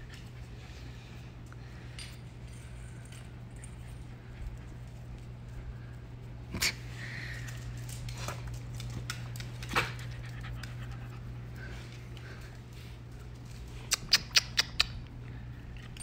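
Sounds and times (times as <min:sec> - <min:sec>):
steady low hum: 0:00.0 - 0:16.0
claws ticking on tile floor: 0:07.0 - 0:16.0
dog panting: 0:09.7 - 0:13.0.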